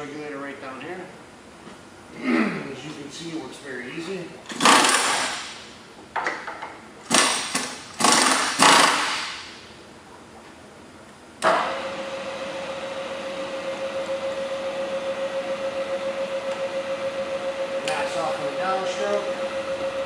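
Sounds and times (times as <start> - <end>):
pneumatic drawbar air blasts: 4.5 - 5.6, 7.1 - 9.6.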